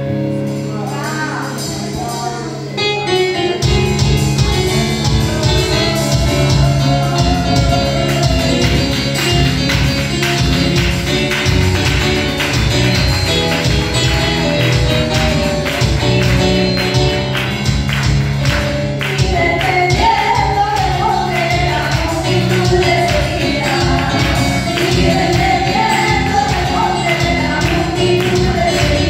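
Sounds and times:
keyboard accompaniment: 0.0s - 29.0s
steady beat: 3.6s - 29.0s
women singing into microphones: 19.1s - 29.0s.

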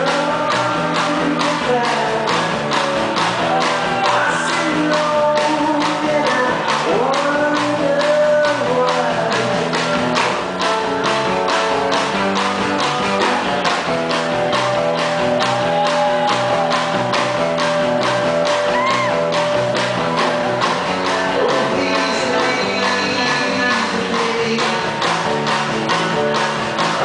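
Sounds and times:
man singing: 0.0s - 10.4s, 21.1s - 25.4s
bass guitar: 0.0s - 27.0s
drums keeping a steady beat: 0.0s - 27.0s
electric guitar: 0.0s - 27.0s.

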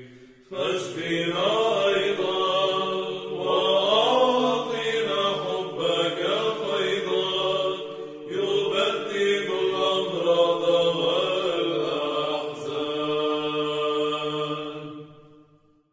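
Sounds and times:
low held vocal drone: 0.0s - 15.0s
choir chanting: 0.0s - 15.5s.

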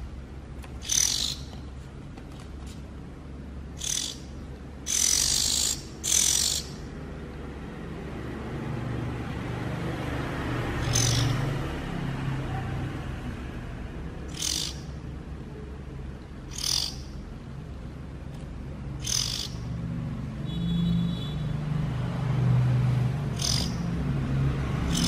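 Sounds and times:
bird fledgling begging calls: 0.8s - 1.6s, 3.7s - 6.9s, 10.8s - 11.5s, 14.2s - 15.0s, 16.4s - 17.3s, 19.0s - 19.8s, 23.2s - 24.0s.

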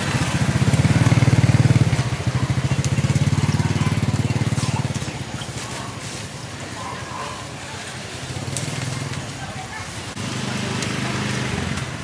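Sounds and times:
motorcycle engine puttering: 0.0s - 6.0s.

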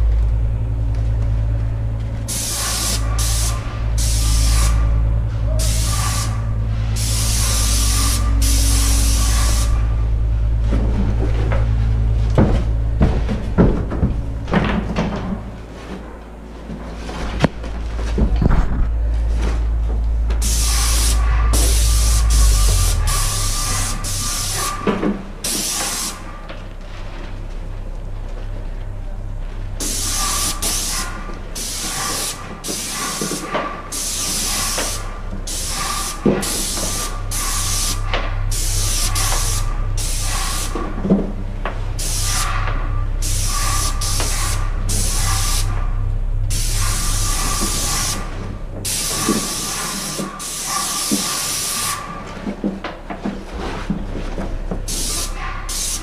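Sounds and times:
low steady hum: 0.0s - 56.0s
paint spray gun hissing: 2.3s - 4.9s, 5.6s - 10.0s, 20.4s - 26.3s, 29.8s - 40.9s, 42.0s - 45.8s, 46.5s - 52.1s, 54.9s - 56.0s.

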